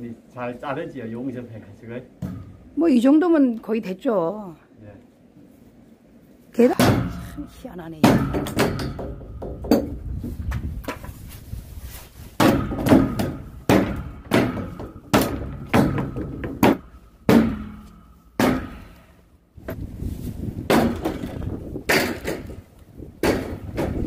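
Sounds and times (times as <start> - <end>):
wooden boards knocked loose: 12.4 - 17.8, 20.7 - 22.6, 23.2 - 24.0
hammer blows on steel frame: 12.4 - 19.2.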